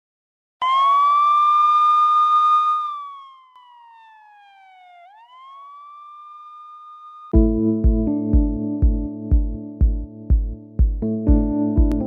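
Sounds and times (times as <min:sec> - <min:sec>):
siren wailing: 0:00.6 - 0:07.4.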